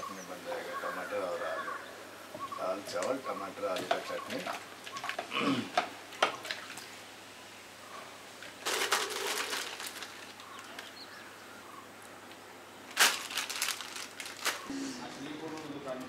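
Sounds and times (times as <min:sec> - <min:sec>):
plastic packet crinkling: 0:08.6 - 0:10.9, 0:12.9 - 0:14.7.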